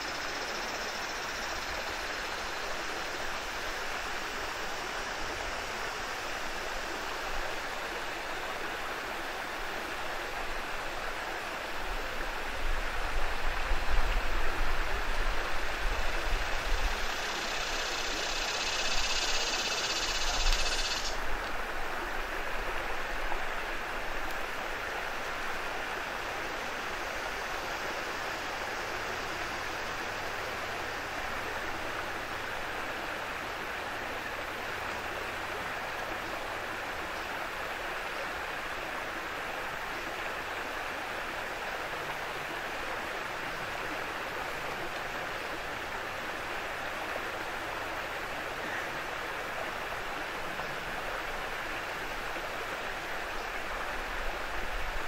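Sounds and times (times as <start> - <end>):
small waterfall rushing: 0.0 - 55.0.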